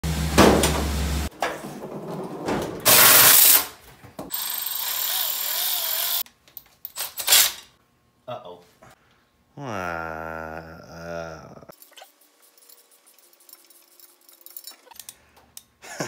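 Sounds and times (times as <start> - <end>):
cordless power tool whirring: 4.3 - 6.2.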